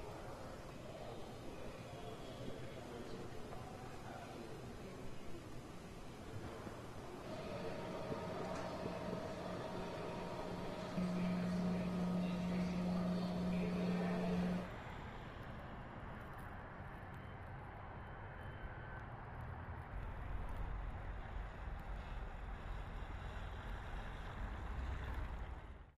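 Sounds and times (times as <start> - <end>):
steady droning hum: 0.0 - 14.7
traffic on a snowy road: 7.3 - 25.9.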